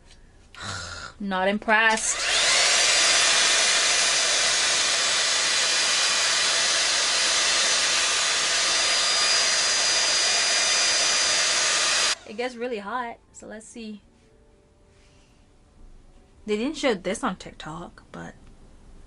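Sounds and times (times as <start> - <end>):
hair styler motor whining: 1.8 - 12.4.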